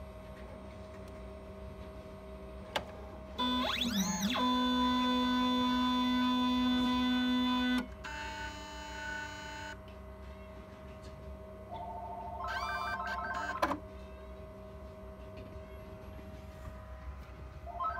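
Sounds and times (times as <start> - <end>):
pulsing motor whine rising in pitch: 3.4 - 7.8
motors whining: 3.4 - 9.7.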